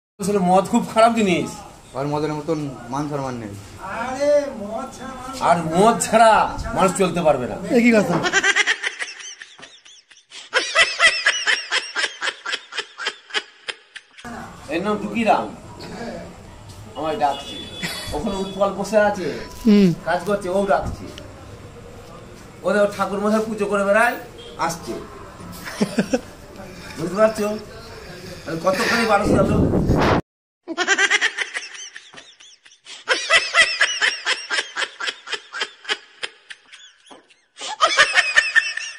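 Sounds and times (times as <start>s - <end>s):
high-pitched laughter: 8.3s - 14.3s, 30.7s - 38.9s.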